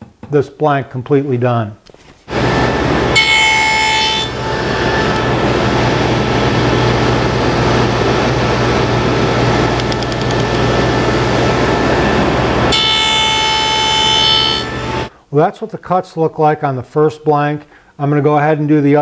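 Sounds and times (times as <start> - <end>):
table saw cutting wood: 2.3 - 15.1.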